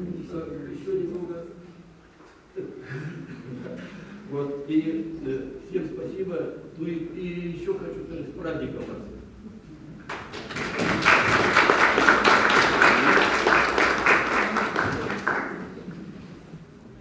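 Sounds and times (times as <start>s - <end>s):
audience applauding: 10.1s - 16.1s.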